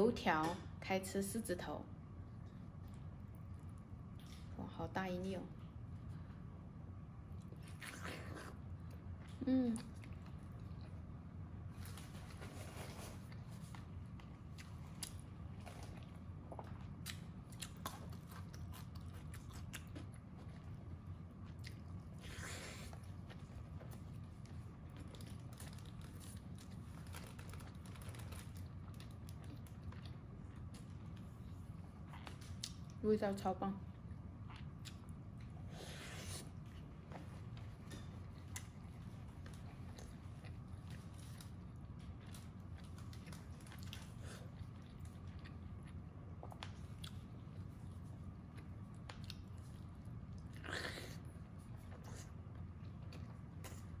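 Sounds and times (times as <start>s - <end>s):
low steady hum: 0.0s - 54.0s
person chewing and biting: 15.8s - 20.8s.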